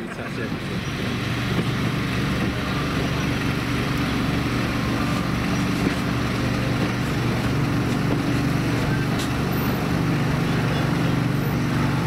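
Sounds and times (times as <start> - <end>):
diesel locomotive engine droning: 0.0 - 12.0.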